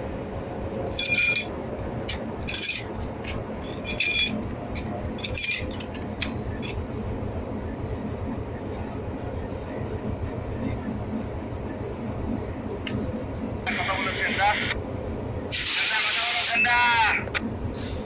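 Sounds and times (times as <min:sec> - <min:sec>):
locomotive low rumble: 0:00.0 - 0:15.6, 0:16.8 - 0:18.0
metal clinking on railway coupling: 0:00.7 - 0:06.9.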